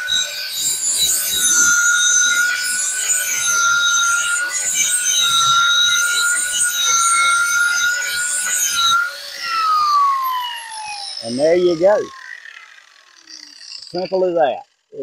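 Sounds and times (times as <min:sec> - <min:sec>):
angle grinder grinding steel: 0:00.0 - 0:15.0.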